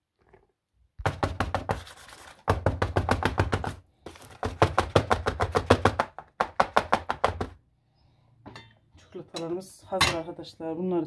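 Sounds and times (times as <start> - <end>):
box knocking on countertop: 1.0 - 1.8, 2.5 - 7.6.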